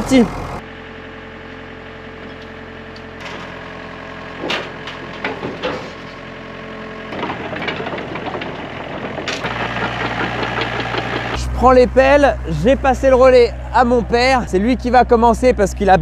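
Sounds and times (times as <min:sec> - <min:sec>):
diesel engine running: 0:00.0 - 0:16.0
metal tracks knocking and clanking: 0:04.4 - 0:06.2, 0:07.1 - 0:11.4.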